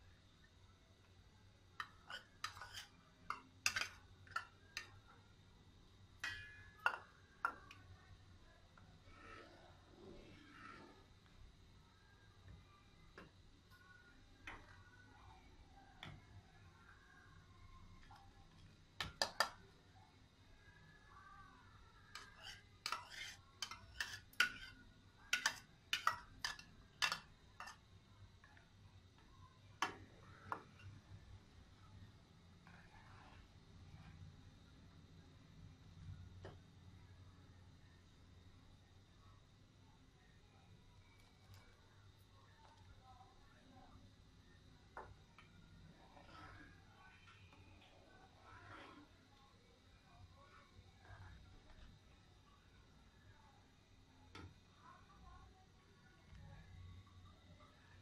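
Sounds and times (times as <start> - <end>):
spoon clinking on china bowl: 1.8 - 4.9
steel ladle scraping a bowl: 1.8 - 4.9, 22.2 - 27.8
ladle tapping metal pot: 6.2 - 7.7.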